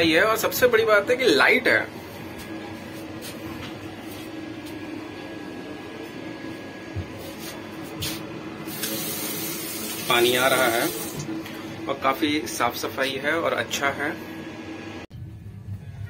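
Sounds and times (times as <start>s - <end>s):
steady background hum: 0.0s - 16.0s
tap water running into sink: 8.7s - 11.4s.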